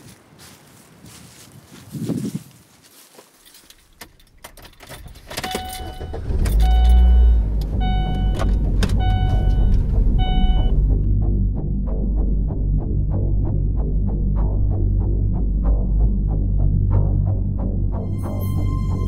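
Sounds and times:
keys jingling: 3.4 - 6.4
car engine running: 4.0 - 14.0
car warning chime: 5.4 - 10.8.

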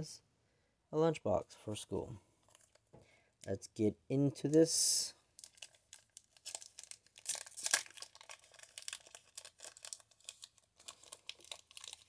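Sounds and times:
foil being torn open: 5.4 - 12.0
foil wrapper crinkling: 5.4 - 12.0.

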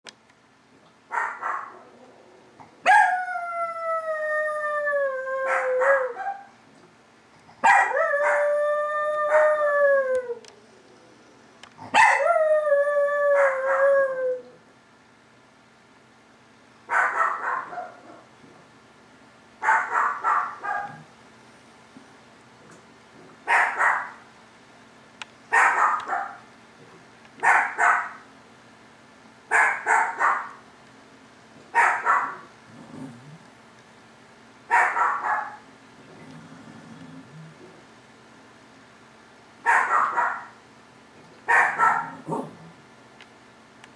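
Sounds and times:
small dog barking: 1.1 - 1.9, 2.8 - 3.1, 5.5 - 6.5, 7.6 - 8.4, 11.9 - 12.2, 16.9 - 18.3, 19.6 - 21.1, 23.5 - 24.2, 25.5 - 26.5, 27.4 - 28.2, 29.5 - 30.6, 31.7 - 32.5, 34.7 - 35.6, 39.6 - 40.6, 41.5 - 42.6.

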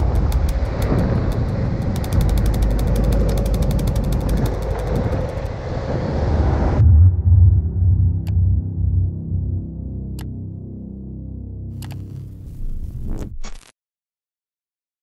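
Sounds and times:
bike freewheel hub ticking: 0.0 - 5.6
low throbbing electronic music: 0.0 - 5.6, 6.8 - 13.2
wind rumble on microphone: 0.0 - 9.6.

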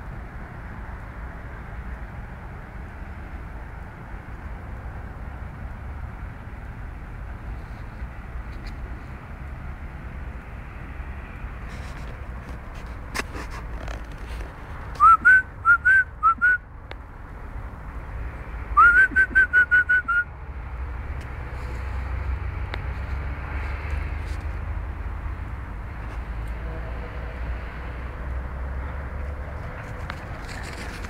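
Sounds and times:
person whistling: 15.0 - 16.6, 18.8 - 20.3.

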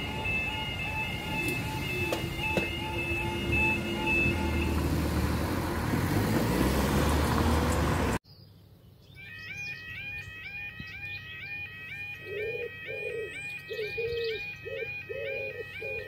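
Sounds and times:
warbling yodel alarm: 0.0 - 5.8, 9.2 - 16.0
level crossing alarm tones: 0.0 - 6.3, 9.2 - 16.0
road traffic: 0.0 - 16.0.

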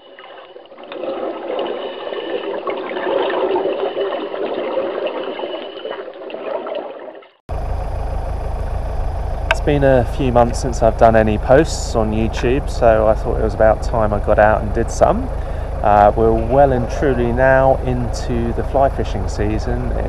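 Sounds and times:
running water: 0.0 - 7.4, 10.0 - 20.0
steady low rumble: 7.5 - 20.0.

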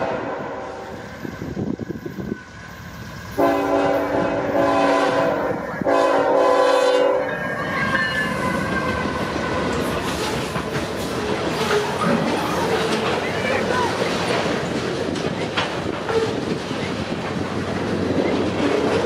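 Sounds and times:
locomotive air horn blasts: 0.0 - 0.9, 3.4 - 7.3
freight cars rumbling and clattering: 7.3 - 19.0.

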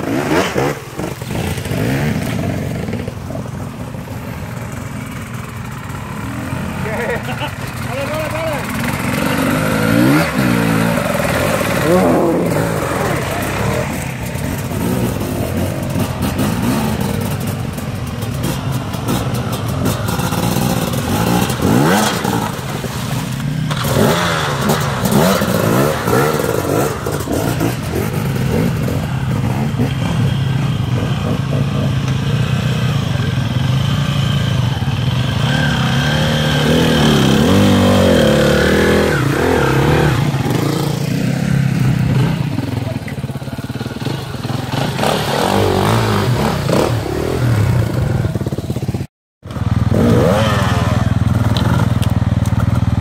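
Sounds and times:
dirt bike engines revving: 0.0 - 53.0.

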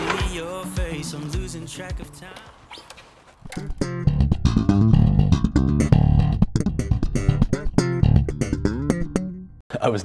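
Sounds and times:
electric bass guitar plucked: 3.5 - 9.6.

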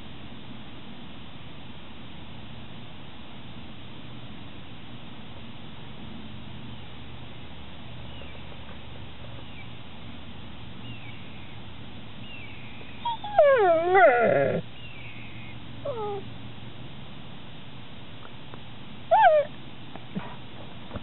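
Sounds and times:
dog whining: 13.0 - 14.7, 15.8 - 16.3, 19.1 - 19.5.

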